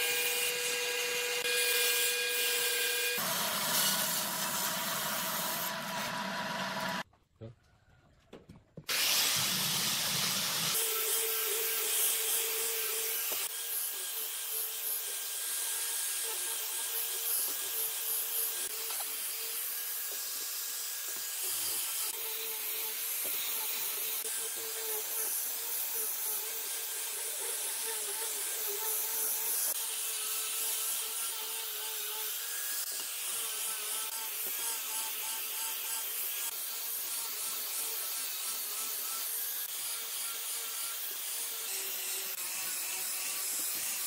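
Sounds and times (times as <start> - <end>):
angle grinder motor whine: 0.0 - 7.0
abrasive hiss on wood: 8.9 - 10.8.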